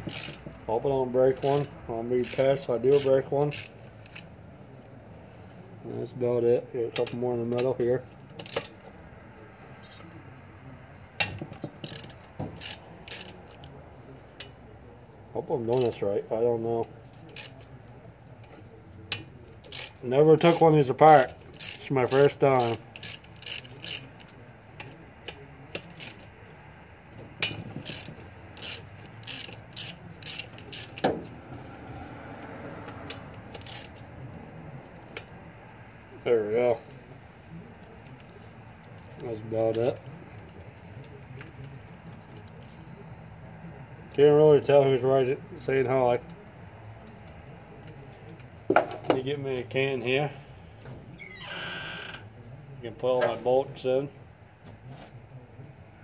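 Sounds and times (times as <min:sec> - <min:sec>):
ratchet wrench clicking: 0:00.0 - 0:00.6, 0:01.3 - 0:04.3, 0:08.4 - 0:08.8, 0:11.2 - 0:13.6, 0:15.7 - 0:16.0, 0:17.2 - 0:17.7, 0:19.2 - 0:24.4, 0:25.7 - 0:26.4, 0:27.4 - 0:31.2, 0:32.8 - 0:34.0.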